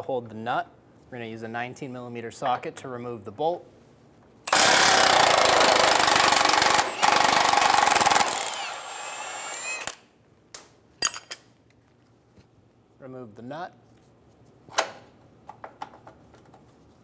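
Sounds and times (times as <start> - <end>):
impact wrench running: 4.5 - 10.0.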